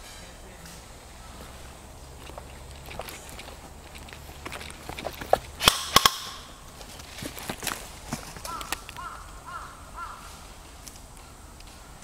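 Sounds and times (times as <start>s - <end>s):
footsteps on leaf litter: 1.2s - 5.7s, 6.5s - 9.1s
airsoft gun cracks: 5.6s - 6.6s.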